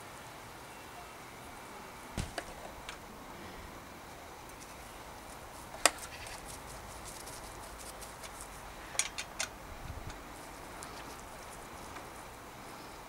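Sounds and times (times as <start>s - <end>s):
faint handling rustle: 4.4s - 13.0s.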